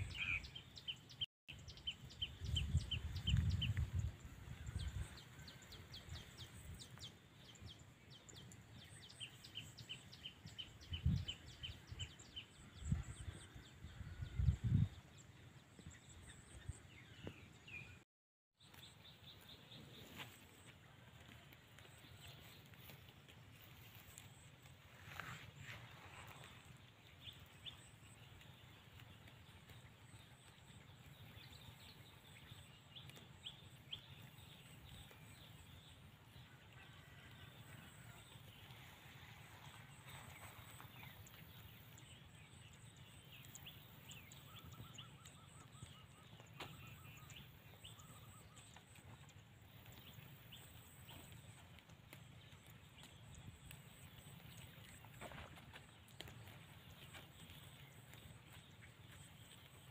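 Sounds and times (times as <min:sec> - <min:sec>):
small ticks and chirps: 0:18.6 - 0:59.9.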